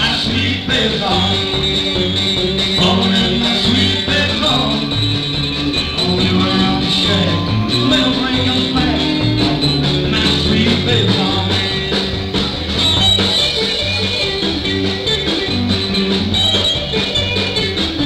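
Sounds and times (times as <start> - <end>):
country rock band playing: 0.0 - 18.0
electric guitar: 0.0 - 18.0.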